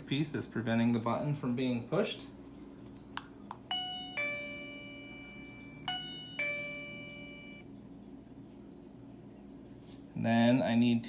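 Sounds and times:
two-note doorbell chime: 3.7s - 7.7s.

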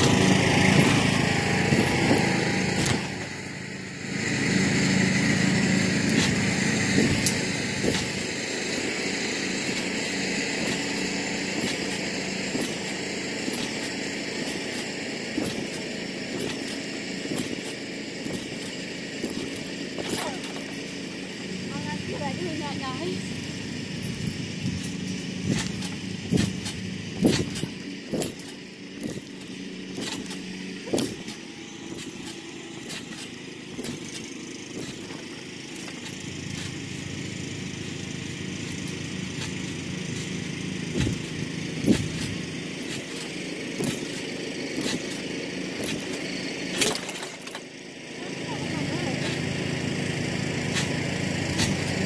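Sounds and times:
feet thudding on trampoline: 0.0s - 3.5s, 5.4s - 22.5s, 23.3s - 47.7s, 50.6s - 52.0s
engine-like drone: 0.0s - 52.0s.

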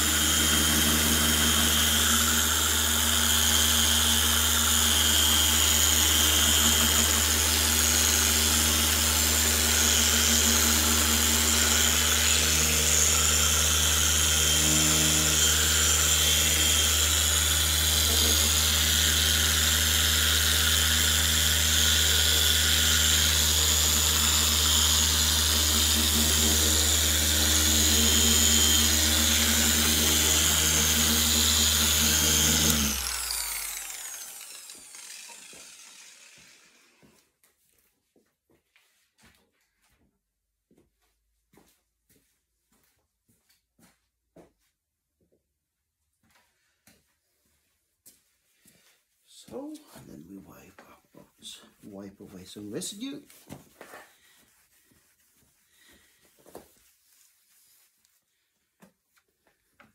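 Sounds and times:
electric polisher motor humming: 0.0s - 37.1s.

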